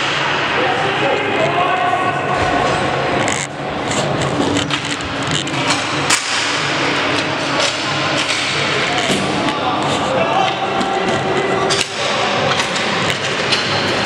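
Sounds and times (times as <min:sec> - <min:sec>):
hockey sticks clacking: 0:03.2 - 0:14.0.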